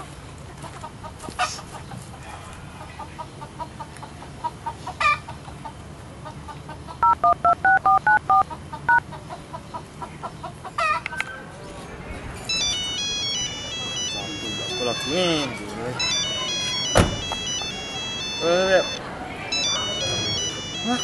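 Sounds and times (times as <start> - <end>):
chickens clucking: 0.3 - 7.4, 8.3 - 12.0
phone keypad tones: 7.0 - 9.0, 12.5 - 21.0.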